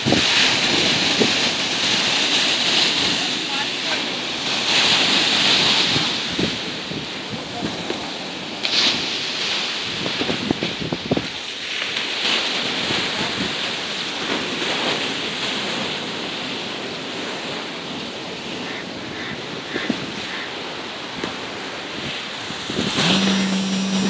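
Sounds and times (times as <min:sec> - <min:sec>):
wind buffeting microphone: 0:00.0 - 0:03.4, 0:05.1 - 0:08.1, 0:09.8 - 0:11.4, 0:17.4 - 0:24.0
waves breaking against a seawall: 0:00.0 - 0:24.0.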